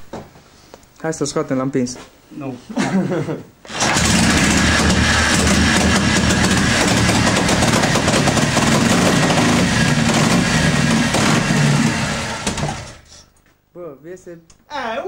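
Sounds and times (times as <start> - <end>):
motorcycle engine running: 3.7 - 13.0.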